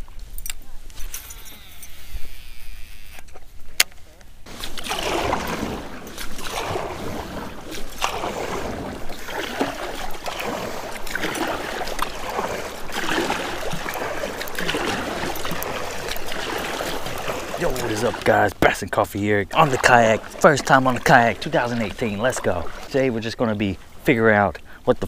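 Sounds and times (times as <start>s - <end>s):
kayak paddle splashing in water: 4.5s - 18.8s, 19.5s - 24.4s.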